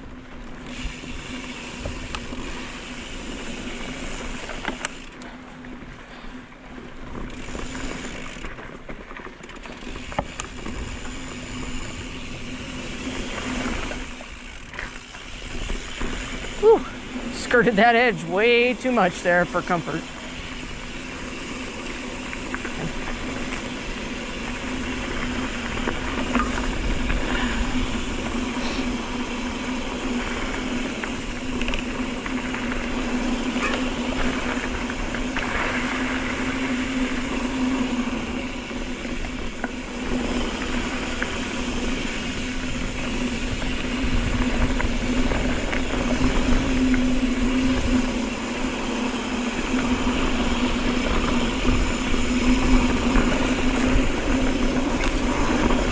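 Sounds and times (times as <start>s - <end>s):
bike rattling over gravel: 0.0s - 55.9s
bike tyres humming on dirt: 0.0s - 55.9s
rumbling wind noise: 20.0s - 55.9s.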